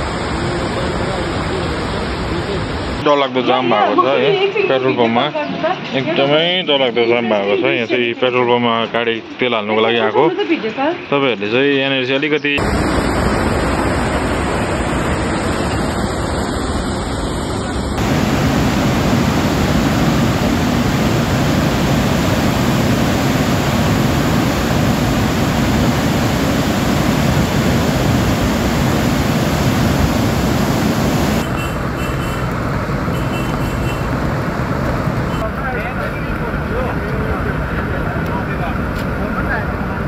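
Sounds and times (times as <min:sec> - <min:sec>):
rushing river torrent: 0:17.9 - 0:33.1.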